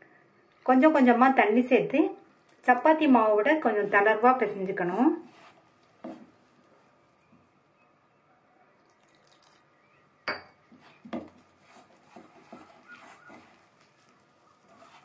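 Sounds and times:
dough squeezed by hand: 0:10.8 - 0:15.0.

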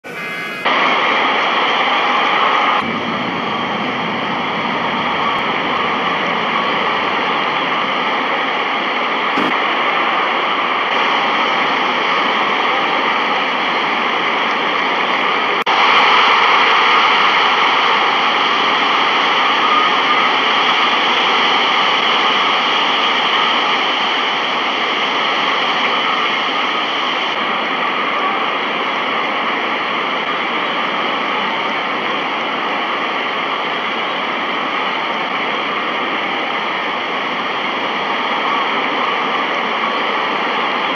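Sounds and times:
steady roaring noise: 0:00.0 - 0:19.4.

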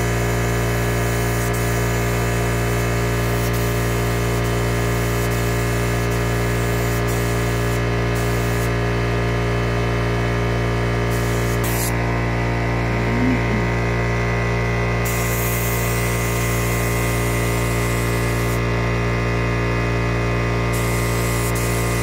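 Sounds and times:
spray gun hissing: 0:03.2 - 0:08.7, 0:11.1 - 0:12.0, 0:20.8 - 0:22.0
steady hum: 0:09.4 - 0:15.5.

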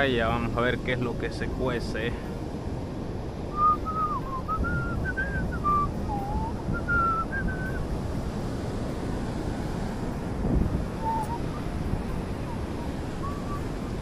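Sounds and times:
surf: 0:00.0 - 0:14.0
wind noise on microphone: 0:02.3 - 0:14.0
person whistling a tune: 0:03.5 - 0:07.8, 0:11.0 - 0:11.5.

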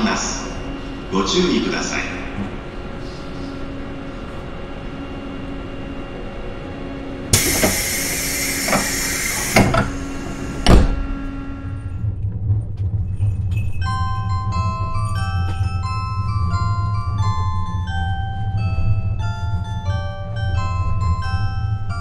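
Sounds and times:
train low rumble: 0:00.0 - 0:22.0
air hiss of train doors: 0:07.3 - 0:11.0
heavy door thuds: 0:08.7 - 0:11.4.

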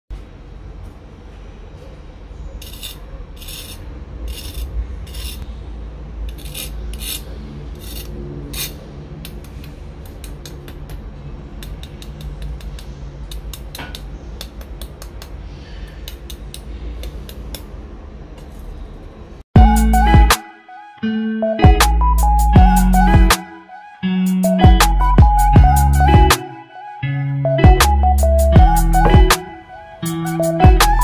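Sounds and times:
knife scraping crispy pork skin: 0:02.6 - 0:05.4, 0:06.3 - 0:08.8.

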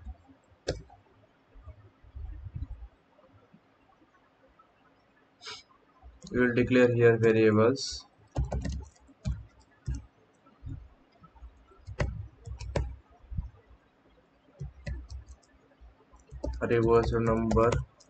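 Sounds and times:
computer keyboard keystrokes: 0:08.3 - 0:10.0, 0:11.8 - 0:13.5, 0:14.6 - 0:15.6, 0:16.2 - 0:18.0.

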